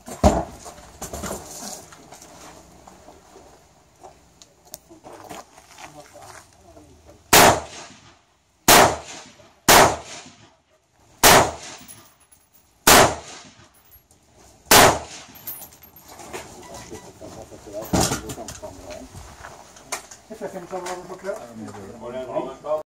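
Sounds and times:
rifle shots with echo: 0:07.3 - 0:10.6, 0:11.2 - 0:12.0, 0:12.8 - 0:13.6, 0:14.7 - 0:15.4.

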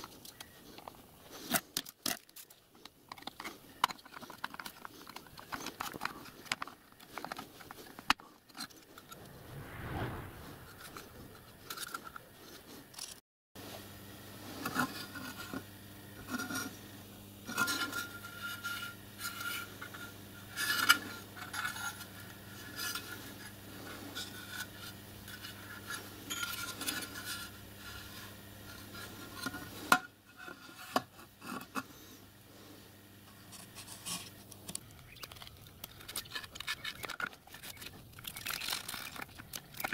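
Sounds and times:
low steady hum: 0:00.0 - 0:39.9
metal parts clinking and scraping: 0:33.8 - 0:39.9.

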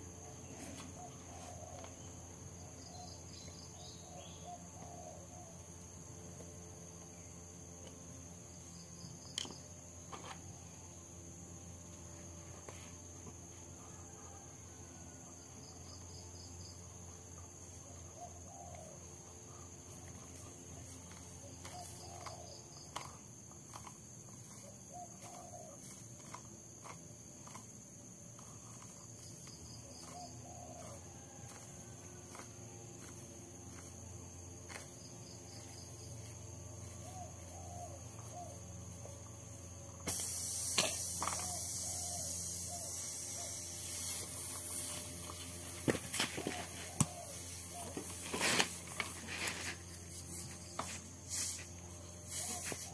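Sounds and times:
crickets chirring: 0:00.0 - 0:52.9
air hissing from tyre: 0:39.5 - 0:52.9.

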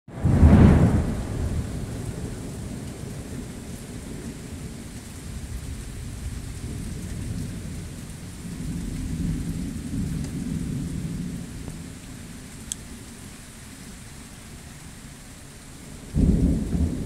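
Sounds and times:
thunder rumbling: 0:00.1 - 0:13.0, 0:15.9 - 0:17.0
steady rain falling: 0:00.1 - 0:17.0.

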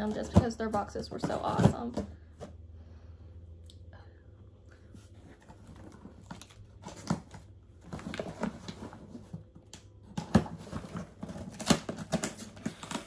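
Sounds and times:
knife cutting cardboard box: 0:10.2 - 0:13.0.

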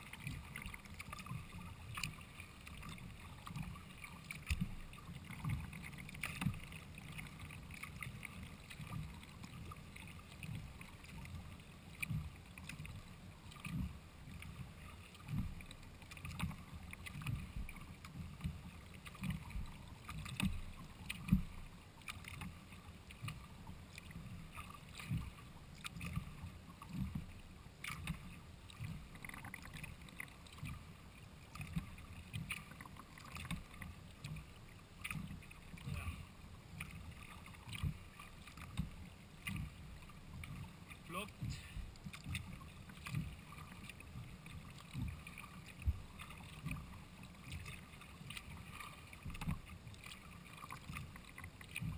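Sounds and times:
paddle splashing in water: 0:00.0 - 0:51.9
low thumps through kayak hull: 0:15.2 - 0:29.9, 0:31.6 - 0:51.9.

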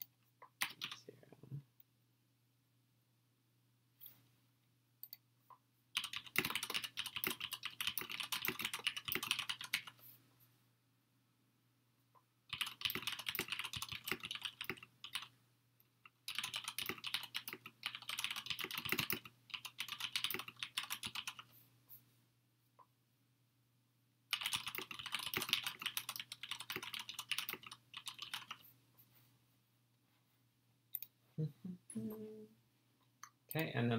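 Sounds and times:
typing on computer keyboard: 0:00.0 - 0:01.0, 0:06.0 - 0:10.0, 0:12.5 - 0:15.3, 0:16.0 - 0:21.5, 0:24.3 - 0:28.6.

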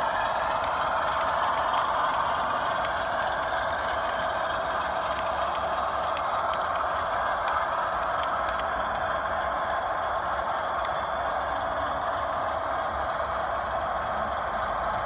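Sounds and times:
model train wheels rumbling on rails: 0:00.0 - 0:15.0
rail joint ticks: 0:00.0 - 0:15.0.

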